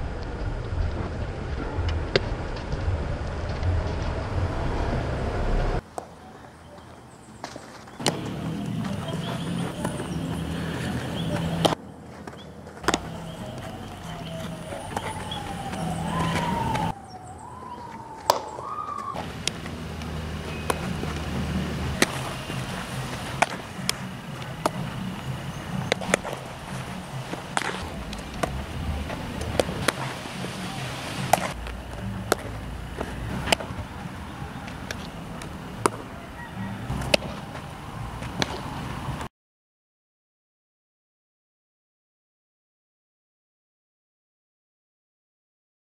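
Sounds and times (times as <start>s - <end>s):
low steady rumble: 0.0s - 5.8s, 19.2s - 34.9s
baseball hit and caught in gloves: 7.4s - 16.9s, 17.8s - 33.8s, 34.6s - 36.1s, 36.9s - 37.6s, 38.2s - 38.7s
siren wailing: 13.0s - 23.1s, 36.1s - 38.4s.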